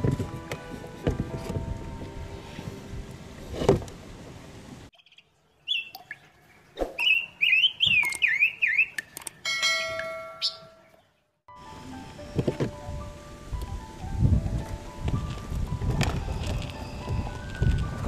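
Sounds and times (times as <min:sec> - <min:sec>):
ringing bell-like chime: 0:09.5 - 0:11.0, 0:16.3 - 0:18.0.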